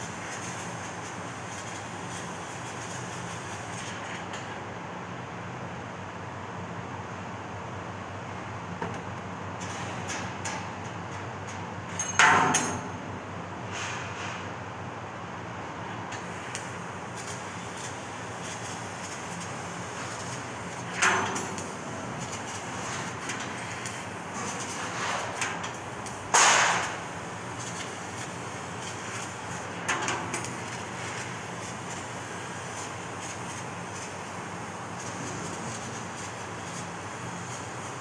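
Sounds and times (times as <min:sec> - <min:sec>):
laser cutting machine running: 0:16.2 - 0:38.0.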